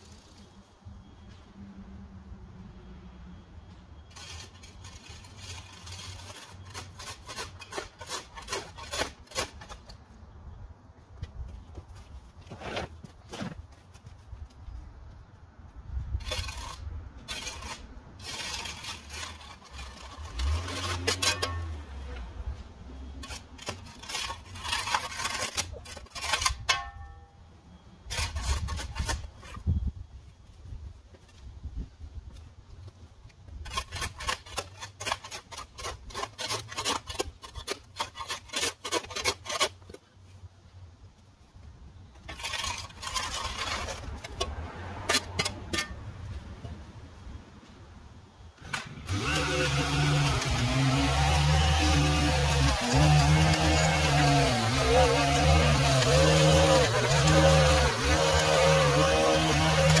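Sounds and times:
rhythmic rasping scraping strokes: 4.1 - 9.8, 23.2 - 26.8, 49.1 - 60.0.

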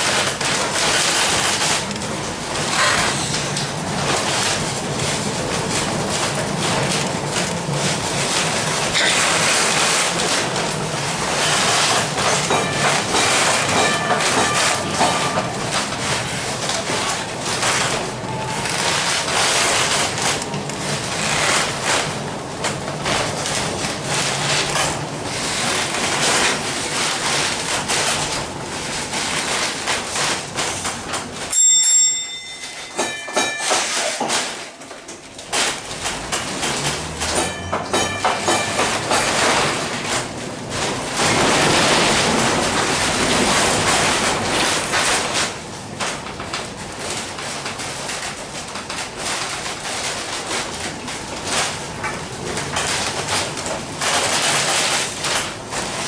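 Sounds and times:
streetcar rumbling on rails: 0.0 - 56.0
short ringing tone: 31.5 - 34.1, 37.4 - 38.8.

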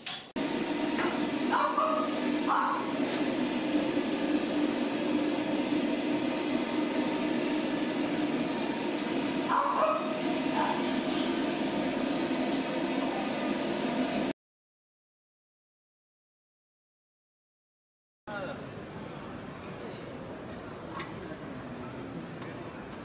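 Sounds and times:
pet dryer blowing: 0.4 - 14.3
dog barking: 1.5 - 2.9, 9.5 - 10.8.

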